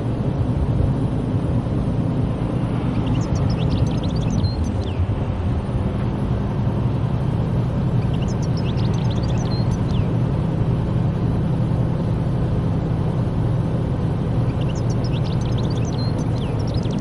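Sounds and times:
car engine and tyres rumbling: 0.0s - 17.0s.

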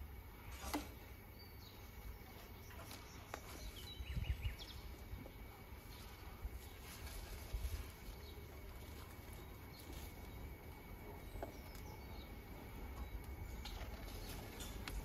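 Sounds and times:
distant bird calls: 0.6s - 15.0s
low wind rumble: 3.7s - 15.0s.

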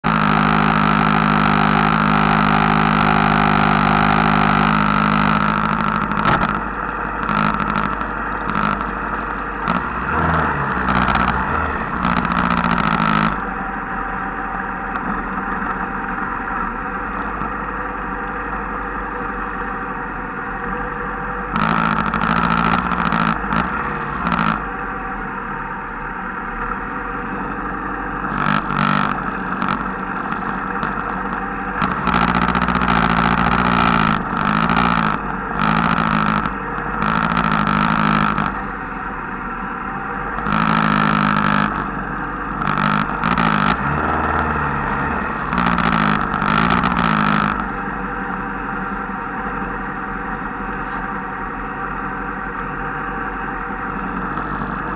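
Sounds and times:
motorcycle engines running: 0.0s - 54.9s.

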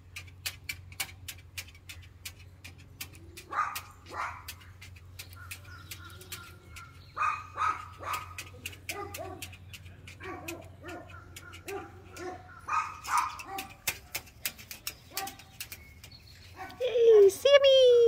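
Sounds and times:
claws clicking on table: 0.0s - 16.8s.

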